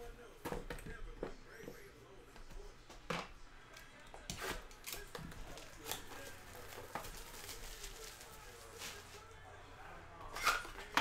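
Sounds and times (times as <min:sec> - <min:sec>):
plastic shrink wrap crinkling: 0:04.8 - 0:09.3.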